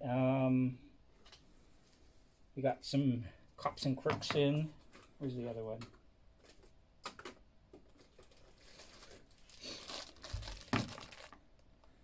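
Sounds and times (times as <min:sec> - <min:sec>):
plastic bag crinkling: 0:07.9 - 0:11.4.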